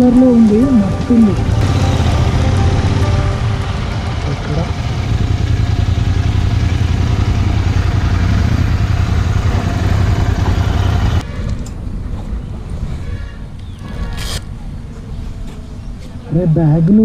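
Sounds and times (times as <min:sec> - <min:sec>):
motorcycle engine idling: 0:00.0 - 0:11.2.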